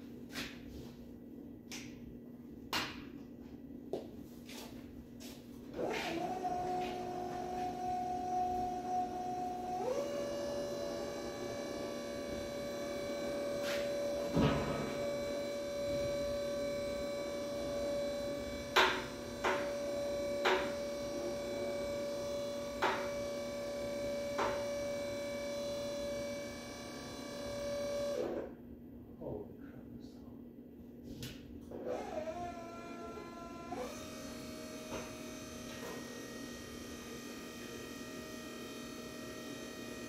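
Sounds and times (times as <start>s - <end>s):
electric lift motor whining: 5.7s - 28.6s, 31.7s - 40.0s.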